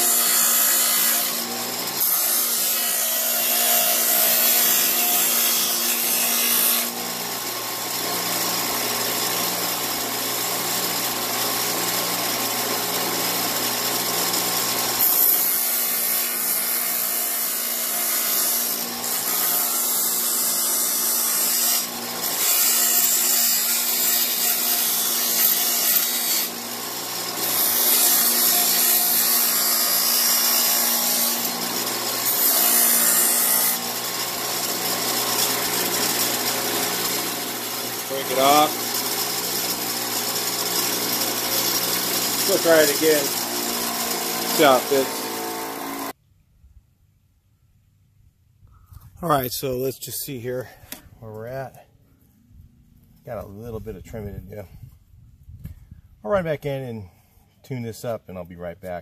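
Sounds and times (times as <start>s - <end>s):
bench grinder motor hum: 0.0s - 46.2s.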